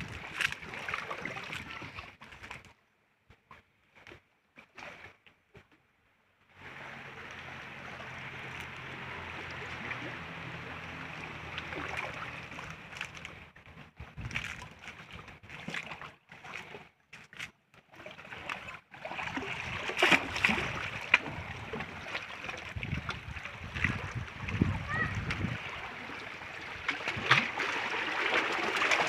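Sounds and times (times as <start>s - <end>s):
stream water lapping among rocks: 0.0s - 5.8s, 6.4s - 29.0s
small clicks and crackles: 12.5s - 13.4s.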